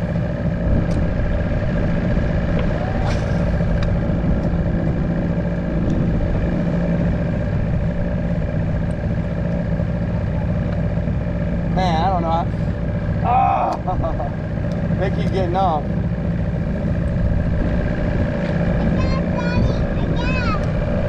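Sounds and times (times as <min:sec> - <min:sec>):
wind rushing over microphone: 0:00.0 - 0:08.9, 0:16.6 - 0:21.0
boat motor running: 0:00.0 - 0:21.0.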